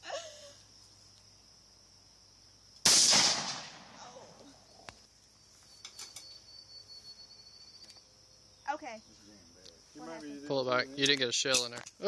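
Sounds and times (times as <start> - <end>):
pistol shot echoing: 2.8 - 4.0.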